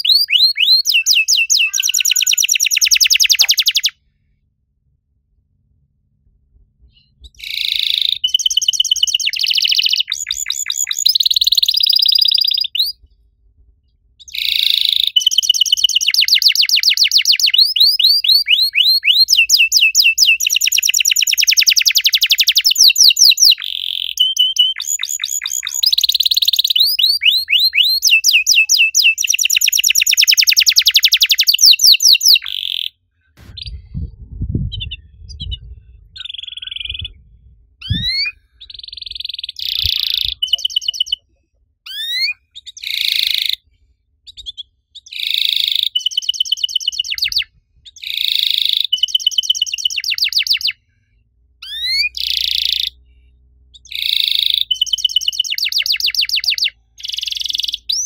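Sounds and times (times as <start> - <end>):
canary singing trills: 0.0 - 4.0, 6.9 - 13.0, 14.2 - 33.9, 34.7 - 41.3, 41.9 - 43.6, 44.3 - 50.8, 51.6 - 53.0, 53.7 - 58.0
low rumble: 4.6 - 7.4, 33.4 - 40.4.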